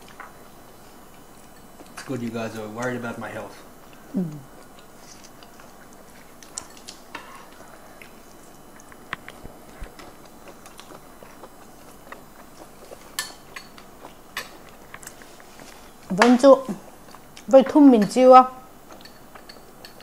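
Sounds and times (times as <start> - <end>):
person chewing: 3.8 - 16.1.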